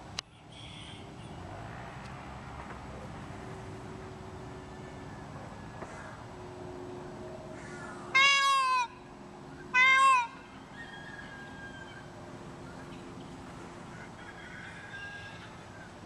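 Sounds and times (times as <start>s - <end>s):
peafowl calling: 0.3s - 1.4s, 7.5s - 16.0s.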